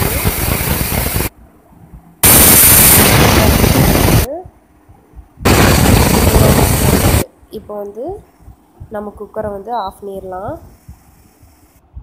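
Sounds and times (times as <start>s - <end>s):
pressure cooker whistle hissing: 0.0s - 1.3s, 2.2s - 4.3s.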